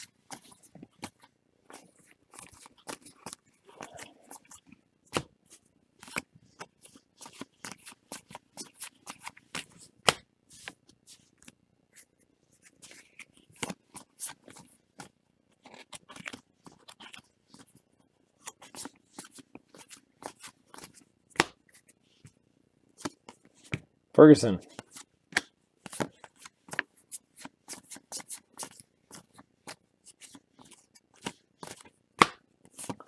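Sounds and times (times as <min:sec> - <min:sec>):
cards flicking and rustling: 0:00.0 - 0:17.8, 0:18.4 - 0:22.4, 0:23.0 - 0:23.9, 0:24.7 - 0:33.0
sharp card snap: 0:32.2 - 0:32.4.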